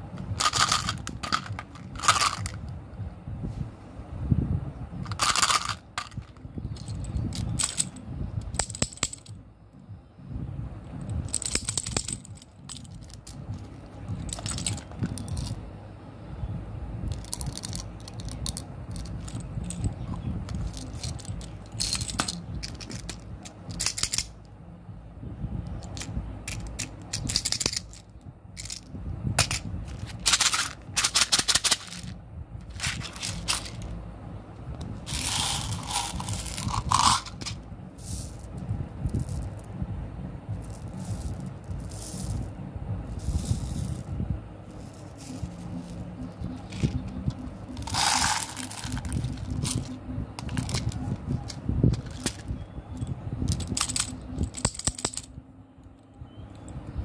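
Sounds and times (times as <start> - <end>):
candies rattling in plastic bottles: 35.1 - 38.3, 47.8 - 51.0.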